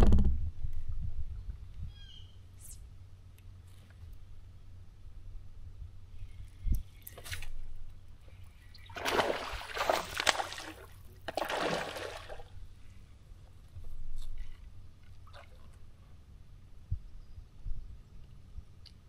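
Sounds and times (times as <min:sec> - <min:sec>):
water sloshing and splashing: 0:08.9 - 0:12.6.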